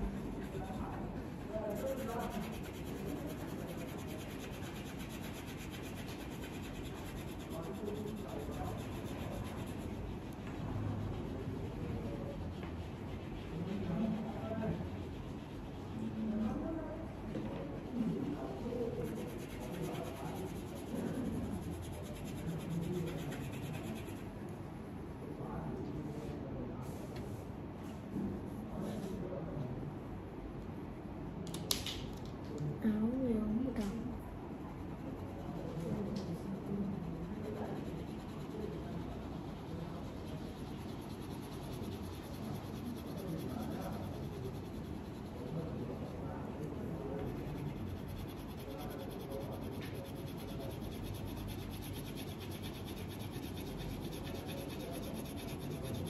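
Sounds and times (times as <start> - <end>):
crayon rubbing on paper: 0.0 - 10.2, 18.2 - 24.3, 35.3 - 56.0.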